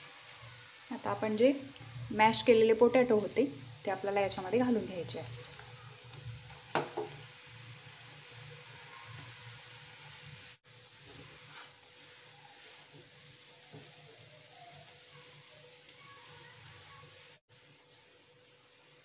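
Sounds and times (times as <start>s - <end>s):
oil sizzling in frying pan: 0.0s - 19.0s
spatula scraping and stirring: 10.9s - 13.9s.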